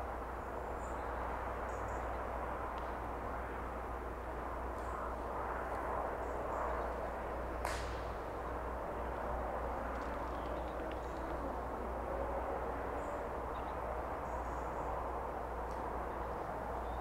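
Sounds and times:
wind in long grass: 0:00.0 - 0:17.0.

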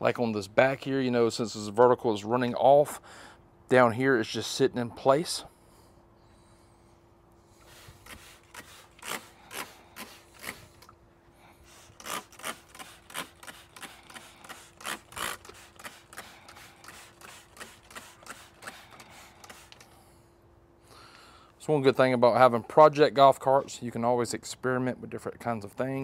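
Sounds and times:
spray bottle spritzing: 0:11.9 - 0:19.8.

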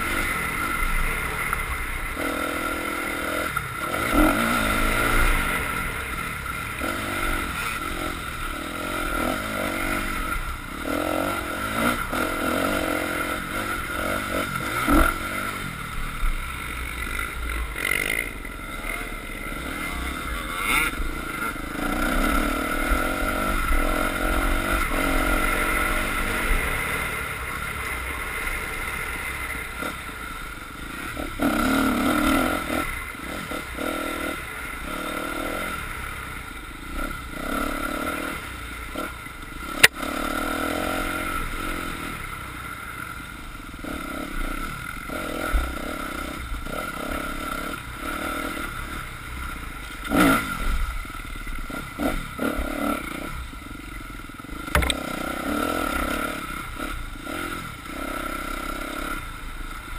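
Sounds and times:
dirt bike engine under throttle: 0:00.0 - 0:59.9
sharp click: 0:54.7 - 0:55.0.

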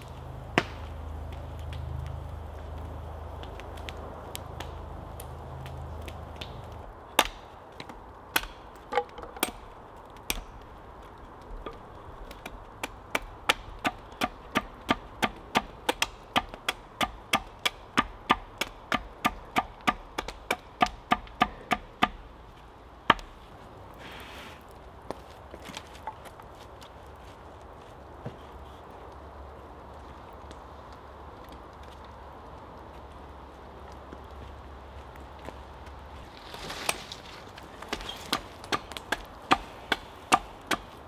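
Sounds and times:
hatchet chopping wood: 0:07.2 - 0:10.5, 0:11.6 - 0:22.3, 0:37.8 - 0:41.0.

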